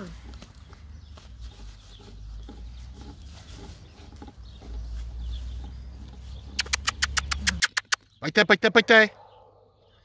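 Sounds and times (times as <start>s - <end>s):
puppies growling and yipping: 6.5s - 8.0s.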